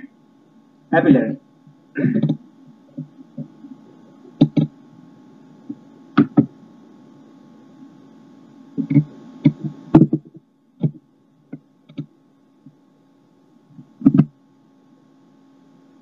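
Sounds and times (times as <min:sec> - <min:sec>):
faint steady hum: 0:00.0 - 0:16.0
knocks and clicks at a desk: 0:04.4 - 0:04.7, 0:06.2 - 0:06.5, 0:08.8 - 0:12.1, 0:14.0 - 0:14.3.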